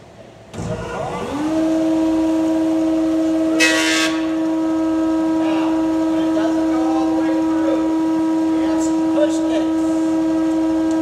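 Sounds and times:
planer starting thump: 0.5s - 2.0s
thickness planer humming: 0.5s - 11.0s.

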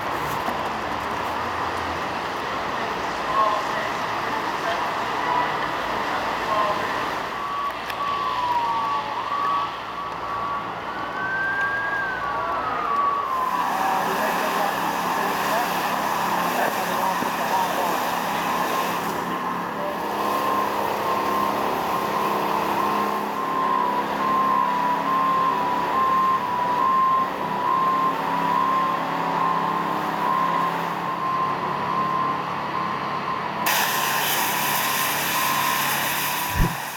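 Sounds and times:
pressure washer motor drone: 12.9s - 23.9s, 33.7s - 36.9s.

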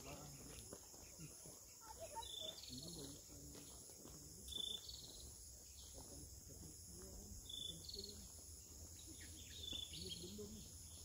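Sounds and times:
faint distant voices: 0.0s - 11.0s.

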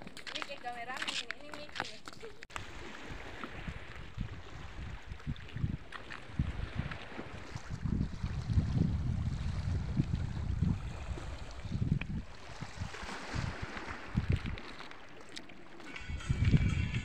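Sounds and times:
wind buffeting microphone: 2.5s - 14.8s, 15.8s - 17.0s.

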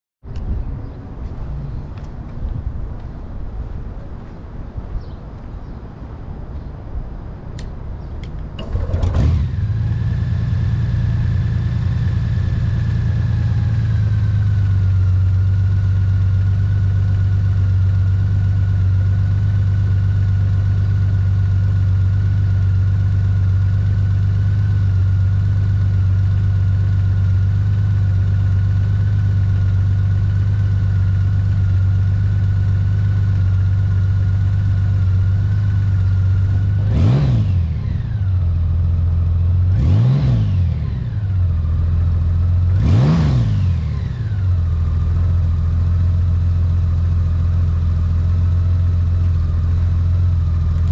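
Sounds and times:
motorcycle engine starting and idling: 7.6s - 50.9s
engine revving: 8.6s - 14.9s, 35.5s - 38.6s, 39.5s - 41.4s, 42.0s - 44.6s.

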